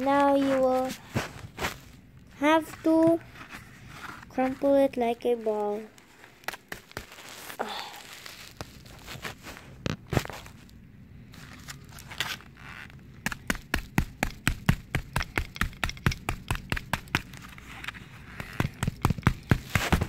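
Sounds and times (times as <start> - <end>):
hammer tapping on foil ball: 13.2 - 17.4, 18.4 - 20.0.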